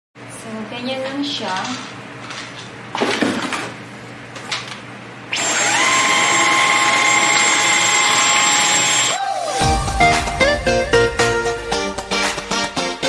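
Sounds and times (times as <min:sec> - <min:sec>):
vacuum cleaner motor whine: 0:05.3 - 0:09.2.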